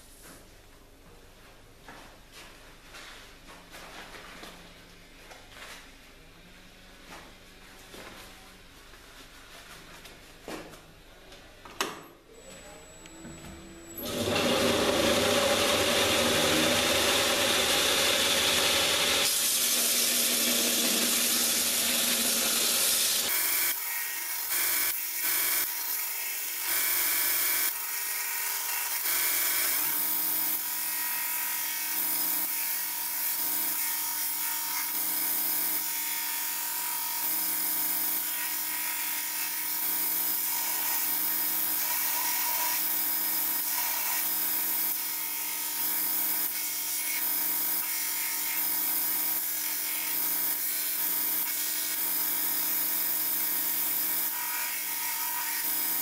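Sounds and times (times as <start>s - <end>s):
belt grinder motor hum: 12.9s - 25.8s.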